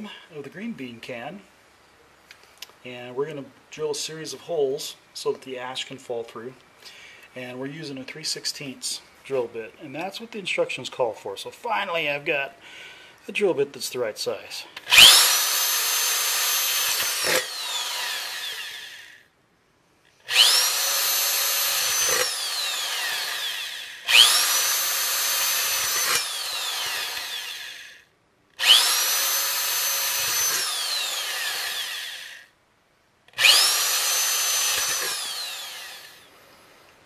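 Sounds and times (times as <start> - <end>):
power drill whining: 14.8 - 19.3, 20.2 - 32.5, 33.3 - 36.3.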